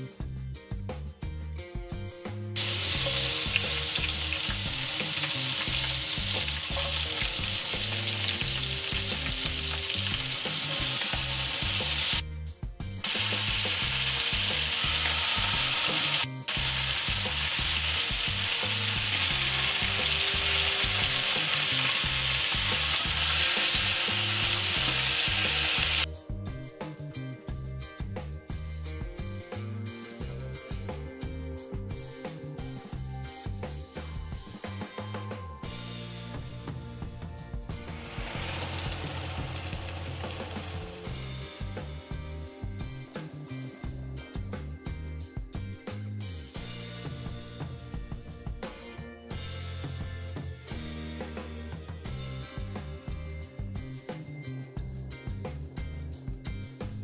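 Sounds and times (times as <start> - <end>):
vegetables sizzling in hot oil: 2.6 - 12.2, 13.0 - 26.1, 38.0 - 41.0.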